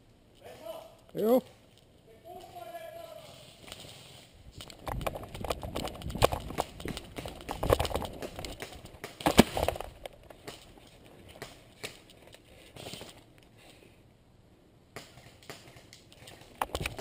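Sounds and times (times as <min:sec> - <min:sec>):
running footsteps on dirt path: 0:04.6 - 0:11.0.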